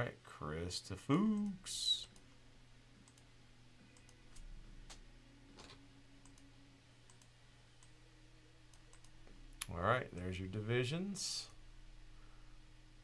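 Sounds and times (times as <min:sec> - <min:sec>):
low room hum: 0:00.0 - 0:13.0
faint computer clicks: 0:03.9 - 0:05.0, 0:05.6 - 0:08.0, 0:08.7 - 0:10.3.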